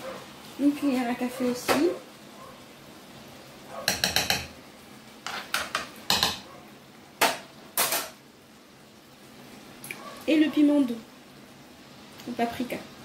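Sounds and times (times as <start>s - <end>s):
spoon scraping pan: 5.2s - 6.5s.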